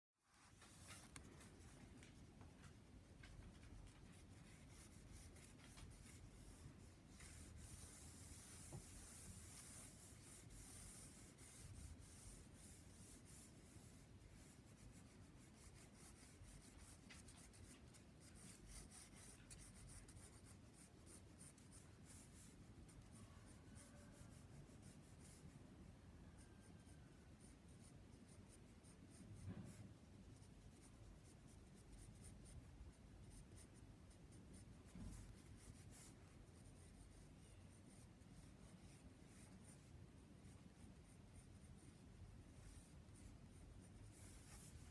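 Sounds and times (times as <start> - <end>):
pencil scratching on paper: 3.8 - 25.5, 33.2 - 39.9, 40.5 - 44.9.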